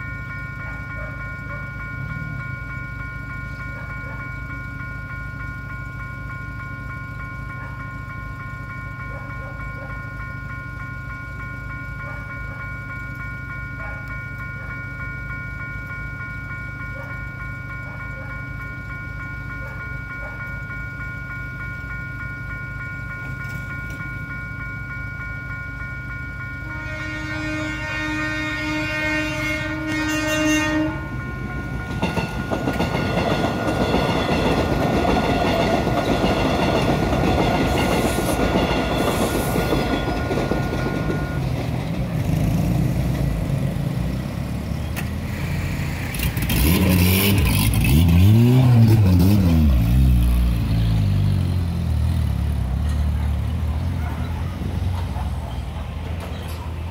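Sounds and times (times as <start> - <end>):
train wheels on rails clickety-clack: 0.0 - 24.7, 28.7 - 56.9
level crossing warning chime: 0.0 - 27.4, 28.1 - 42.5
train horn: 26.6 - 31.2.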